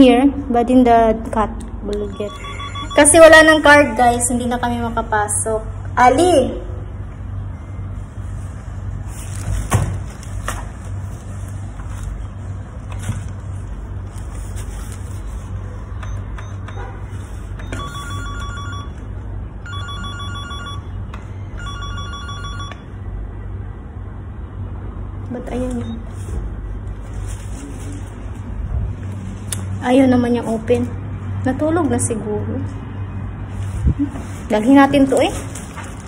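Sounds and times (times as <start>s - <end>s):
electronic trilling rings: 2.1s - 3.7s, 17.7s - 19.0s, 19.6s - 23.0s.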